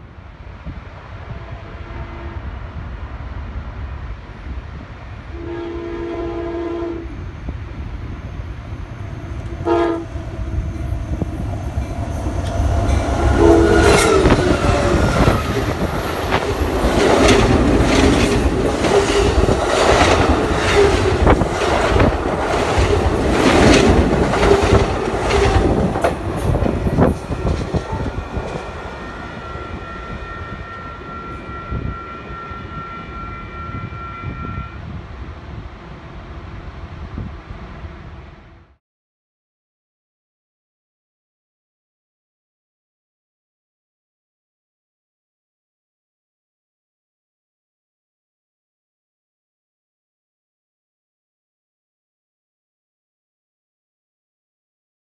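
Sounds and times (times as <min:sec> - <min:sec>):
train rumbling past: 0:00.0 - 0:38.8
train horn blasts: 0:01.2 - 0:02.8, 0:05.2 - 0:07.7, 0:09.1 - 0:22.6, 0:27.0 - 0:35.0.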